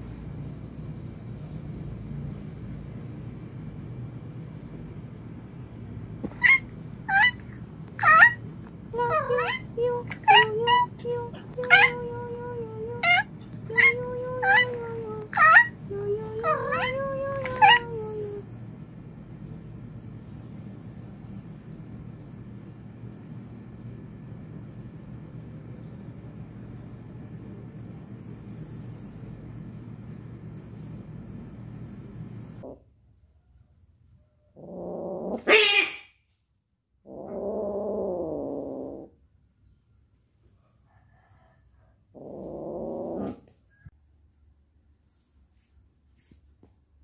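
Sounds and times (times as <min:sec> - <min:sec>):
cat meowing: 0:06.2 - 0:08.4, 0:09.0 - 0:18.4.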